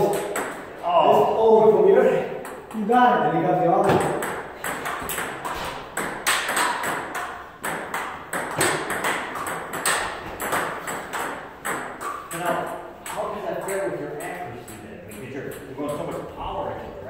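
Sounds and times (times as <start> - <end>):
table tennis ball hitting paddles: 0.0 - 0.8, 2.3 - 2.9, 3.8 - 16.3.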